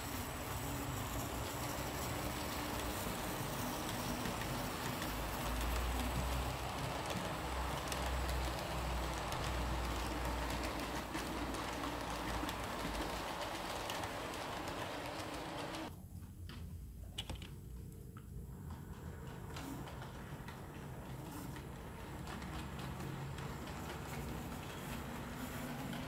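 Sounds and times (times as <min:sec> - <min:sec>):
model train wheels rumbling: 0:00.0 - 0:15.9, 0:18.6 - 0:26.0
light track clicks: 0:01.1 - 0:15.9.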